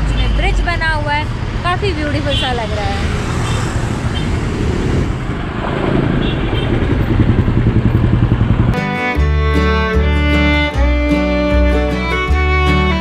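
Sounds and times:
car road noise: 0:00.0 - 0:08.8
motorcycles passing: 0:00.0 - 0:08.8
background music with violin: 0:08.8 - 0:13.0.

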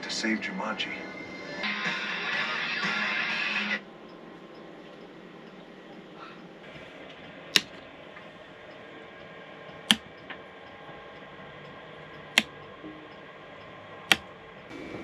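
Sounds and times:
sharp clicks: 0:07.5 - 0:07.8, 0:12.2 - 0:12.6, 0:14.1 - 0:14.3.

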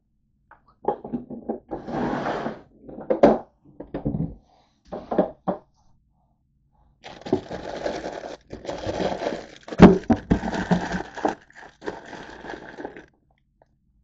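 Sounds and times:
plastic wrappers crinkling: 0:07.0 - 0:13.1.

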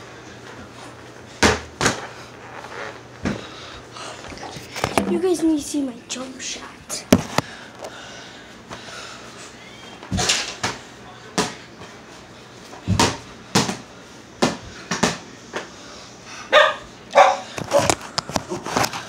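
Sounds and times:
ball bouncing on hard floor: 0:12.9 - 0:13.8.

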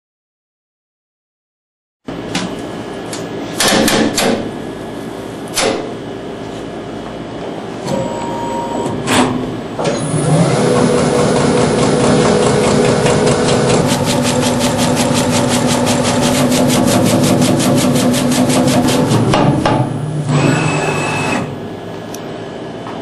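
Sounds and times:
slicing machine motor humming: 0:09.8 - 0:22.2.

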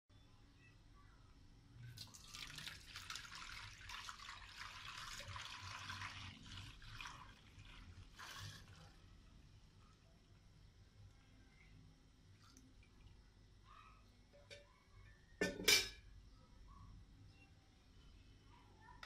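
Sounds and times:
milk pouring into steel pot: 0:01.8 - 0:10.4.

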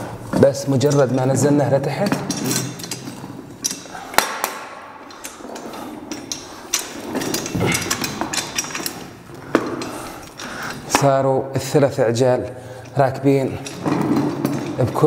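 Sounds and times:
metal legs clanking: 0:00.0 - 0:15.0
sharp knocks: 0:04.1 - 0:05.1.

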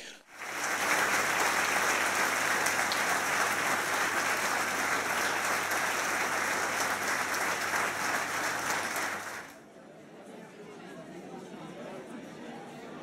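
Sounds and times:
large audience applauding: 0:00.0 - 0:09.6.

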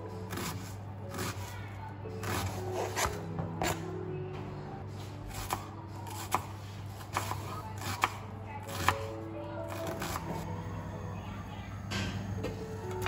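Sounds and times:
knife slicing onion: 0:00.3 - 0:01.6, 0:05.2 - 0:09.1.

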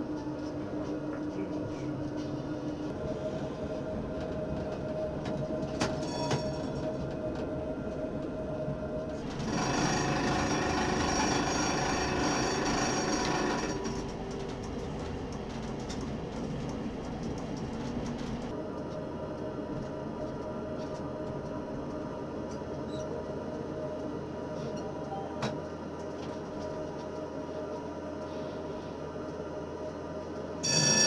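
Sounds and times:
tram motor whine: 0:00.0 - 0:31.0
wheels squealing on rails: 0:05.9 - 0:06.8, 0:09.5 - 0:14.1.

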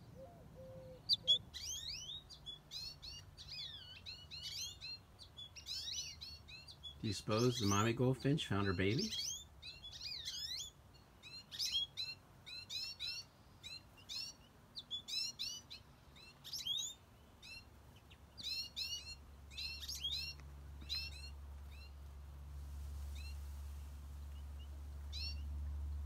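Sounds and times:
goldfinches chirping: 0:00.1 - 0:22.0, 0:23.0 - 0:26.0
low rumble: 0:19.5 - 0:26.0.

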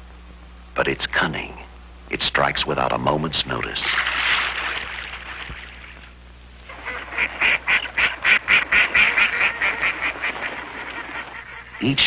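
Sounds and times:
waterfowl quacking and honking: 0:06.7 - 0:12.0.

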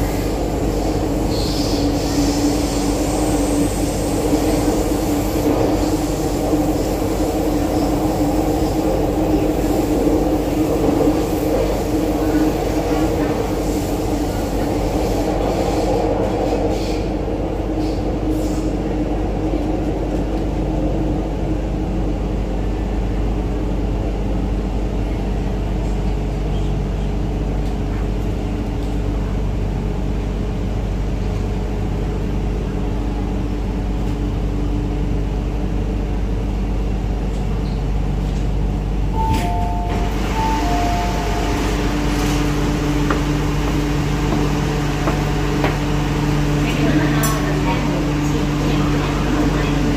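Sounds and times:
metro car rumble: 0:00.0 - 0:49.9
train doors opening: 0:37.2 - 0:49.9
two-note chime: 0:39.2 - 0:41.4.

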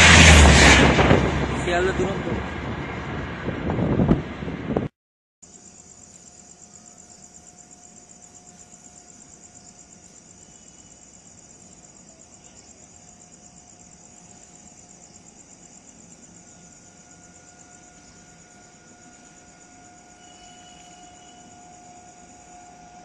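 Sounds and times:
crickets chirring: 0:05.4 - 0:23.0
faint steady tone: 0:05.4 - 0:23.0.

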